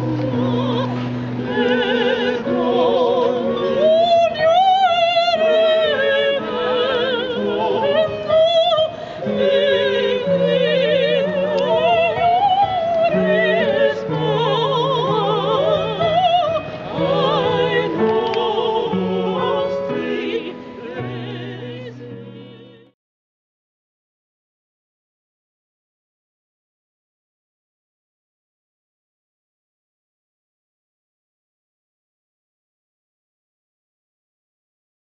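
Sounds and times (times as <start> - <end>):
grand piano: 0.0 - 23.0
operatic singing: 0.0 - 23.0.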